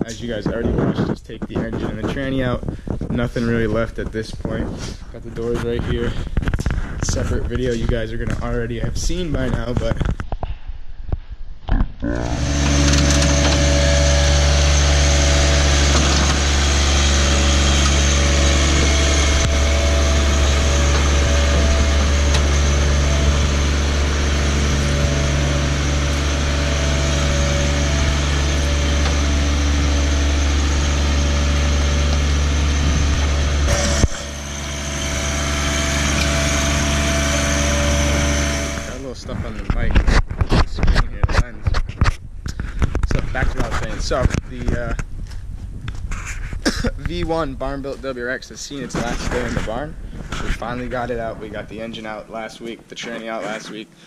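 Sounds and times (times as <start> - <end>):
tractor engine running: 12.0 - 41.6.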